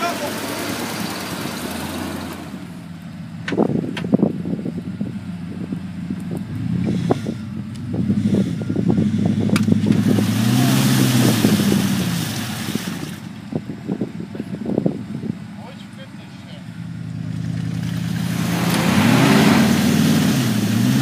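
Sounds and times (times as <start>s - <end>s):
engine revving under load: 0.0s - 13.4s, 16.3s - 21.0s
rushing noise: 17.8s - 21.0s.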